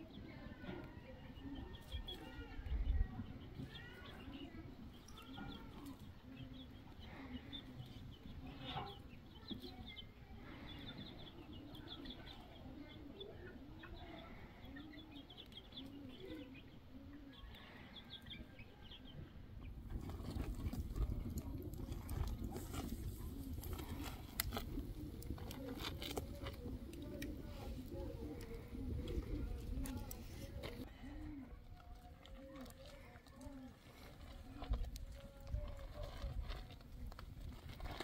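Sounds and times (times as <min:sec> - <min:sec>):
chicks peeping: 0:00.1 - 0:38.0
hens clucking: 0:19.6 - 0:36.4.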